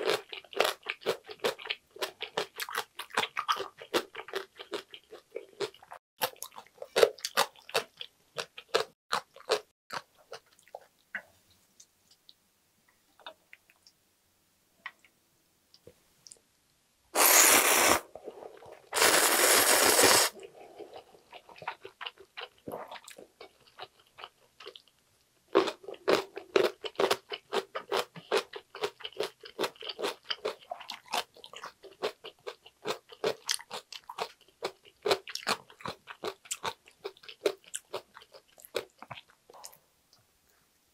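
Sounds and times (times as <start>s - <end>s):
noodle slurps: 17.2s - 20.6s.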